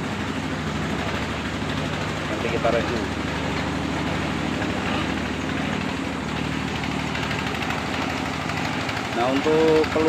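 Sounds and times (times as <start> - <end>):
small engine running steadily: 0.0 - 10.0.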